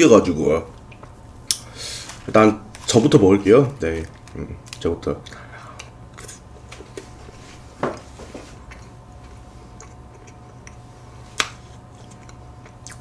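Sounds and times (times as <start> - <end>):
steady low hum: 0.0 - 13.0
close-miked chewing: 3.8 - 7.2, 8.5 - 13.0.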